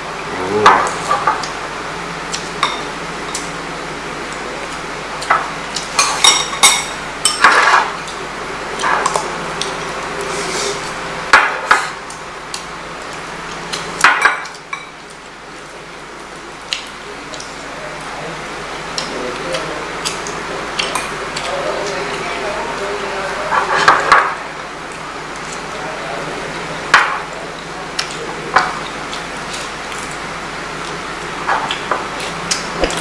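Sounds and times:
utensils clinking against dishes: 0:05.2 - 0:08.2, 0:31.4 - 0:33.0.

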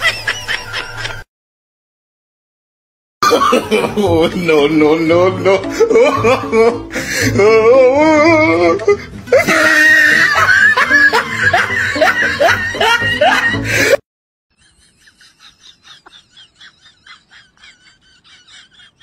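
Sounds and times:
loud laughter: 0:00.0 - 0:01.2, 0:03.2 - 0:07.4, 0:08.8 - 0:14.0, 0:14.6 - 0:19.0
music: 0:03.2 - 0:14.0
voice wailing: 0:07.4 - 0:10.3.

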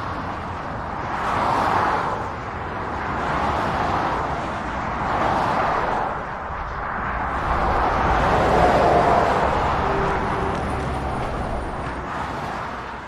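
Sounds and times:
motorway traffic passing: 0:00.0 - 0:13.0.

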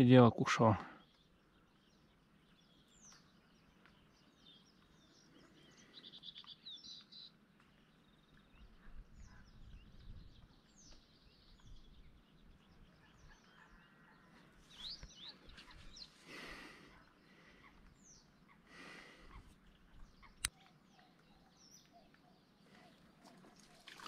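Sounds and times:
small birds chirping: 0:00.0 - 0:24.0
low outdoor hush: 0:13.2 - 0:20.5.

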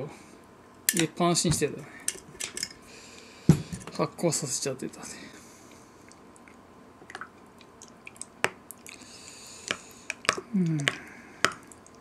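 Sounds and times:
person humming: 0:10.4 - 0:11.3.

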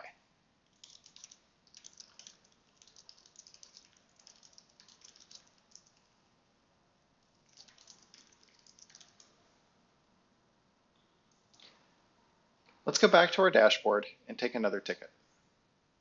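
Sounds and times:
faint keyboard typing: 0:00.7 - 0:06.1, 0:07.4 - 0:09.4.

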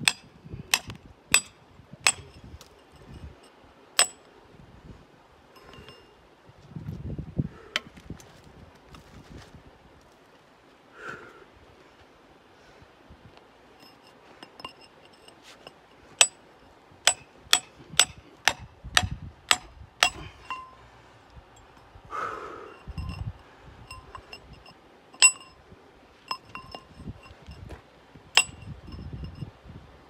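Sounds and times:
hammer striking steel chisel: 0:00.0 - 0:02.4, 0:04.0 - 0:04.2, 0:05.6 - 0:06.0, 0:13.8 - 0:16.4, 0:17.0 - 0:20.8, 0:23.9 - 0:25.6, 0:26.3 - 0:27.2, 0:28.4 - 0:28.8.

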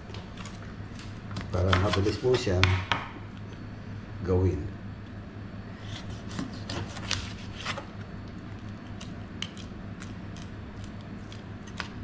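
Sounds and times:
knife cutting and scraping fish: 0:05.7 - 0:07.9, 0:08.6 - 0:12.0.

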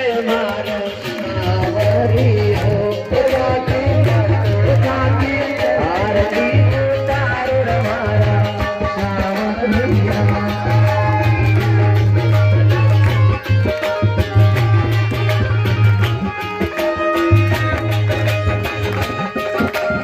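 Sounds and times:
devotional folk music: 0:00.0 - 0:20.0
steady drum beat: 0:00.0 - 0:20.0
congregation clapping: 0:00.3 - 0:03.4, 0:10.1 - 0:20.0.

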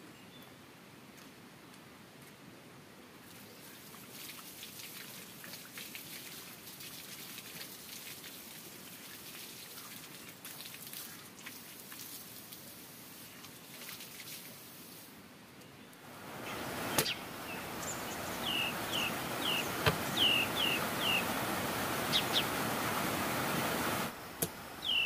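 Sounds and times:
water pattering in fine drops: 0:16.2 - 0:25.0.

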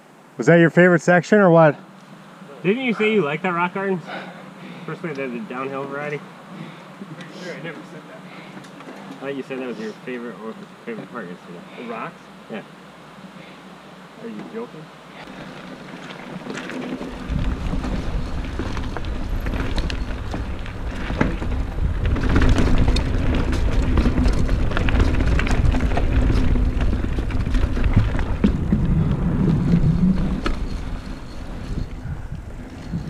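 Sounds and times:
bike ticks and knocks: 0:15.2 - 0:31.4
wind rumbling on microphone: 0:15.3 - 0:33.0.

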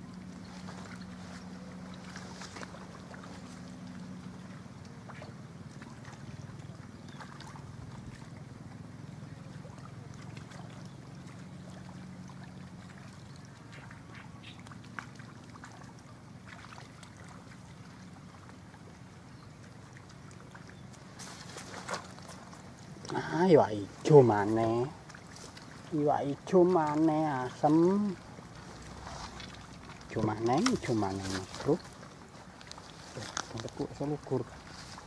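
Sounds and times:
distant motor hum: 0:00.0 - 0:35.0.

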